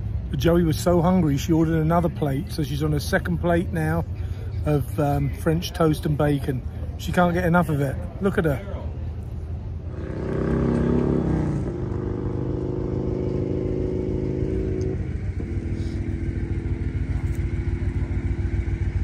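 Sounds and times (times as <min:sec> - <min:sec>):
motorcycle engine idling: 0:09.1 - 0:19.0.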